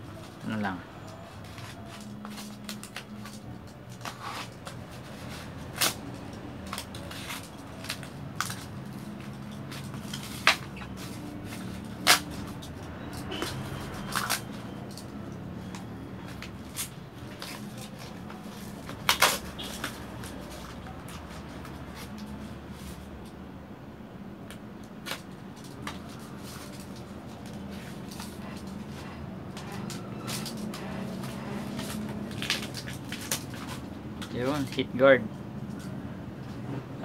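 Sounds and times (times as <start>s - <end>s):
cardboard scraping and rustling: 1.1s - 6.1s.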